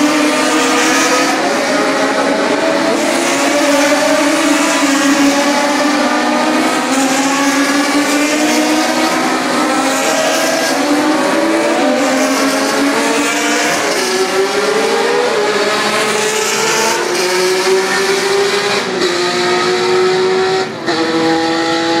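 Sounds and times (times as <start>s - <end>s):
racing car engines revving: 0.0s - 22.0s.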